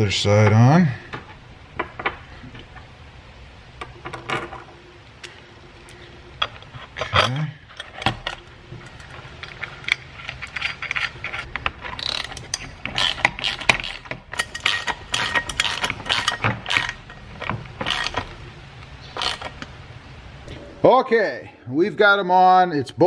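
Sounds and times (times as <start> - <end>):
socket ratchet clicking: 11.9 - 17.0.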